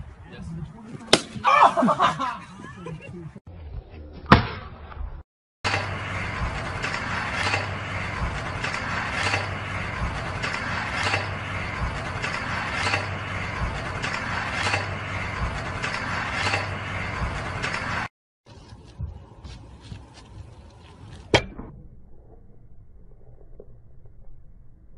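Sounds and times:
skateboard grinding on metal rail: 5.7s - 18.1s.

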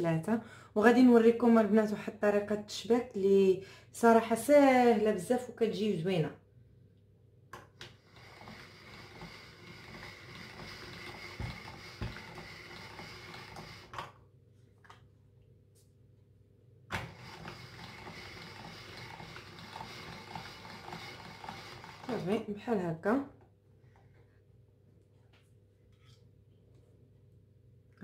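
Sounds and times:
pasta machine whirring: 7.8s - 14.1s, 16.9s - 22.5s.

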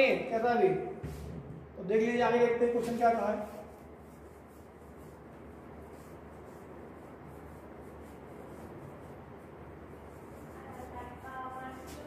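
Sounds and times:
eraser rubbing whiteboard: 2.6s - 12.0s.

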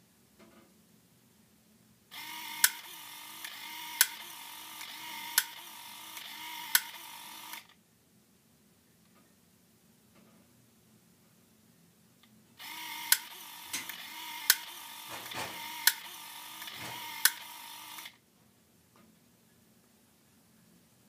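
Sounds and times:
small motor whirring: 2.1s - 7.7s, 12.6s - 18.2s
sharp mechanism clicks: 2.5s - 7.7s, 13.0s - 18.1s.

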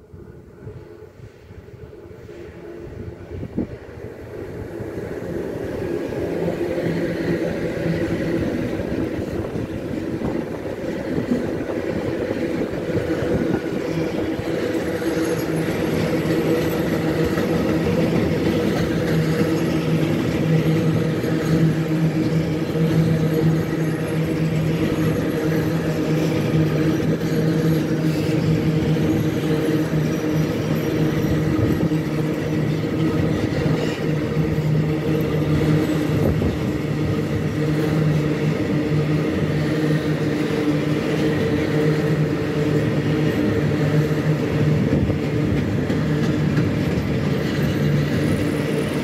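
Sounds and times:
freight train passing: 0.0s - 49.0s
wheels rumbling on rail: 0.0s - 49.0s.

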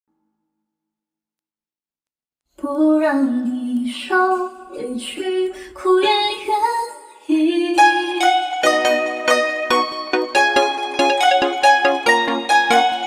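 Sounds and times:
woman singing: 2.6s - 8.4s
plucked-string backing: 7.7s - 13.0s.

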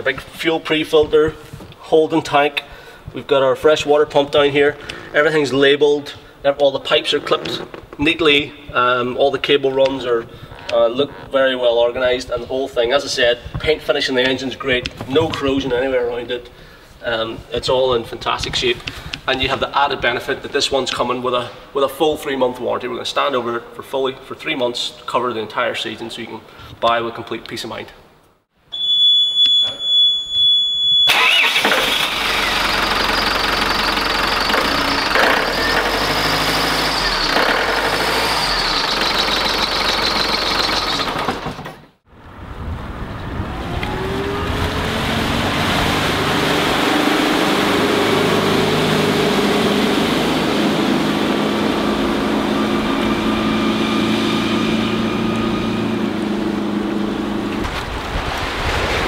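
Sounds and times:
steady high beep: 28.7s - 31.1s
wind on microphone: 42.2s - 46.3s
boat engine running: 43.0s - 57.7s.

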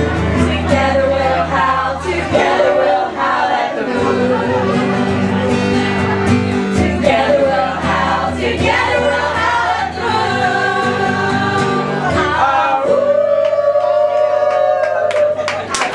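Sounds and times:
strummed acoustic guitar: 0.0s - 13.7s
woman singing: 0.5s - 5.2s, 6.7s - 14.8s.

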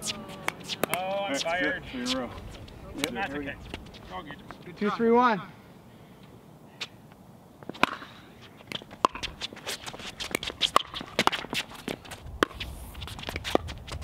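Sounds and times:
paddles hitting plastic ball: 0.4s - 1.1s.

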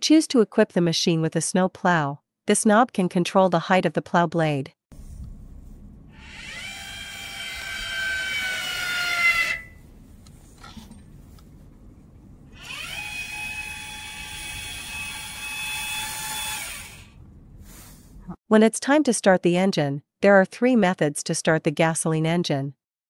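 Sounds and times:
electric actuator whining: 6.1s - 9.9s, 12.5s - 17.3s.

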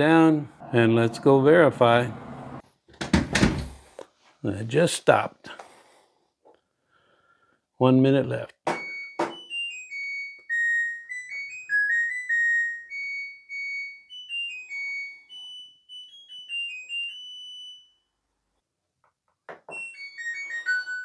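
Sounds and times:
washing machine beeping melody: 8.7s - 18.1s, 19.7s - 21.0s.

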